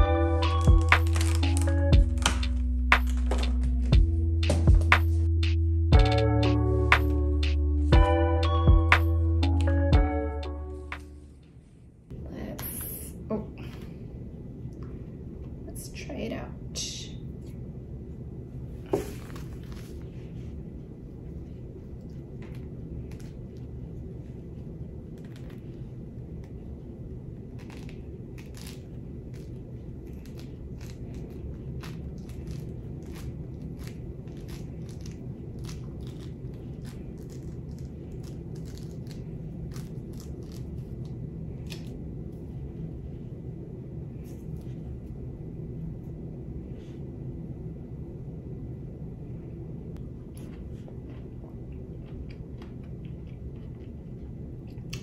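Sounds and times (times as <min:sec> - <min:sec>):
low background hum: 0:00.0 - 0:55.0
orange peel tearing: 0:27.4 - 0:42.0.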